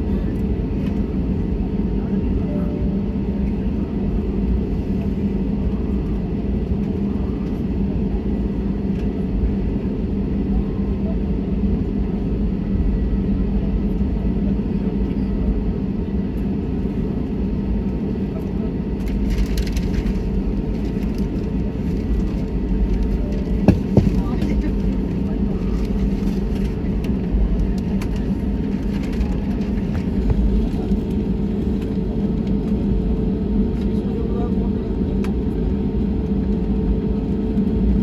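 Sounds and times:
airliner cabin rumble taxiing: 0.0 - 38.0
constant hum: 0.0 - 38.0.

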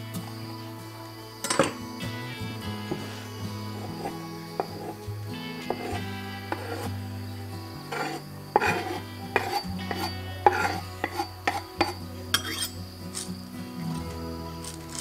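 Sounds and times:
background music: 0.0 - 15.0
knife scraping wooden board: 3.8 - 5.0, 5.6 - 6.9, 7.9 - 12.8.

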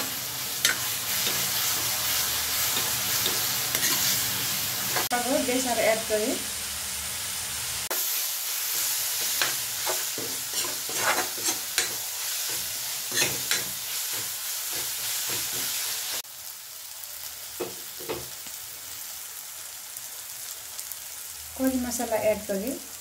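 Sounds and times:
metal spatula scraping pan: 0.0 - 4.3, 8.8 - 15.8
onions sizzling in oil: 0.0 - 23.0.

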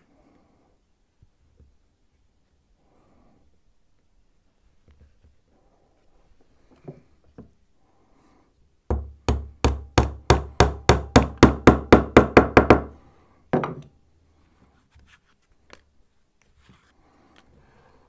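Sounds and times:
hammer tapping wooden dowels: 8.9 - 13.0.

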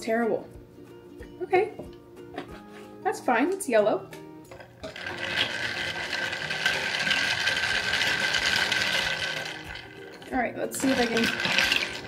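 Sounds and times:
ice cubes rattling in glass jar: 4.8 - 12.0.

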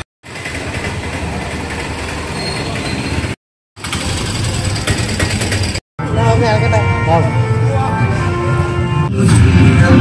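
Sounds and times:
vehicle engine humming: 0.0 - 6.8
road noise: 0.0 - 9.1.

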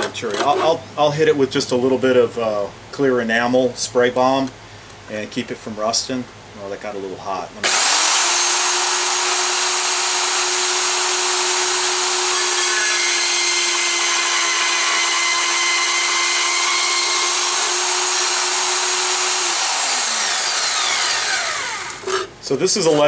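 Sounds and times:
band saw cutting steel: 7.6 - 23.0.

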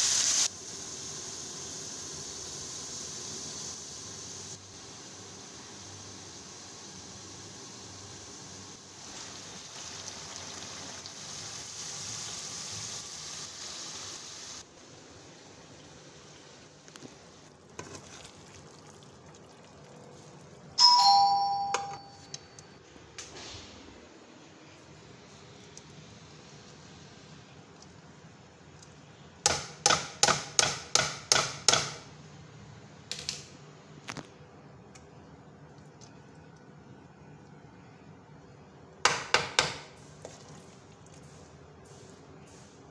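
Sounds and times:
water boiling with bubbling hiss: 0.0 - 20.8, 24.7 - 29.5, 34.9 - 42.9.

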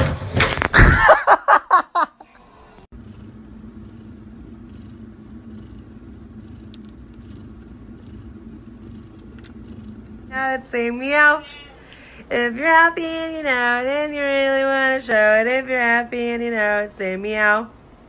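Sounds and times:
cat purring: 2.9 - 11.4.

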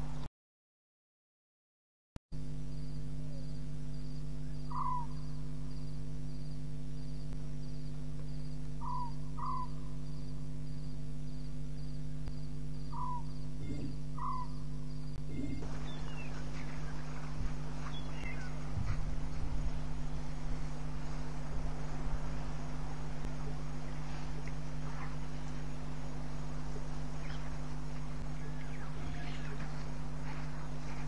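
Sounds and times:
steady electrical hum: 0.0 - 0.3, 2.4 - 31.0
rustling noise: 15.6 - 22.4.

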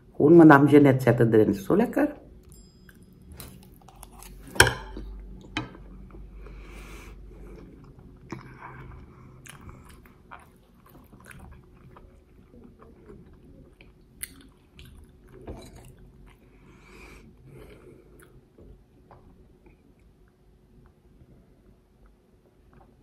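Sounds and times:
wet chewing: 2.4 - 5.5, 7.4 - 16.7.

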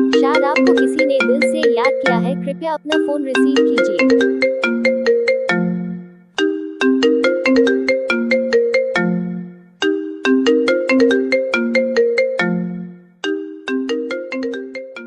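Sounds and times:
phone ringtone melody: 0.0 - 15.0.

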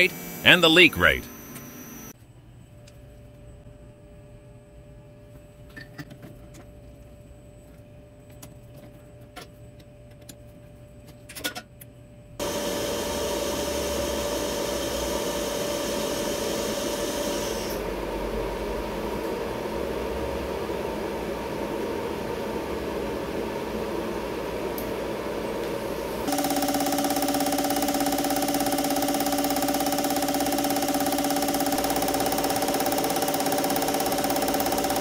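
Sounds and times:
injector test bench humming: 12.4 - 35.0.

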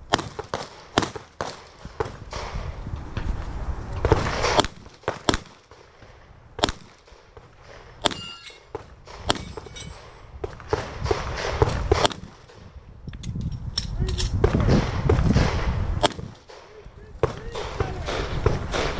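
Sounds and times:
handgun shots: 8.0 - 8.6, 9.2 - 9.9.

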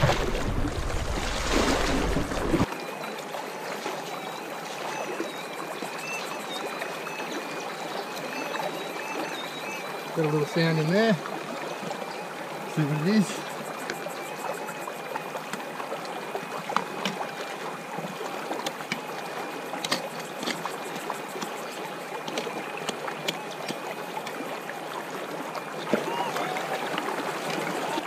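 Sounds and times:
creek water running: 0.0 - 28.0.

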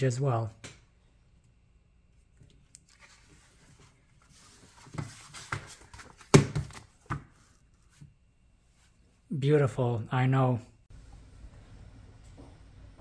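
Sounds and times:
paper booklet rustling: 2.8 - 8.0
booklet thump: 4.8 - 7.4.

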